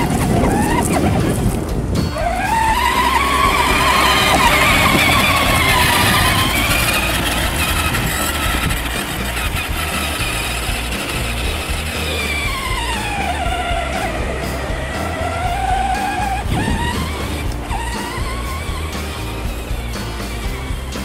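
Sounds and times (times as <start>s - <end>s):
electric motor whining: 0.0s - 21.0s.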